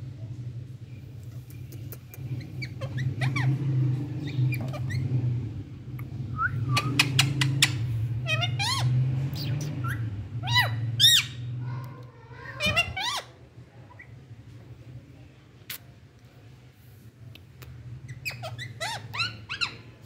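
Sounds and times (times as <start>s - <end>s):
parakeet calls: 1.4s - 5.2s, 6.7s - 11.5s, 12.3s - 14.2s, 18.0s - 20.0s.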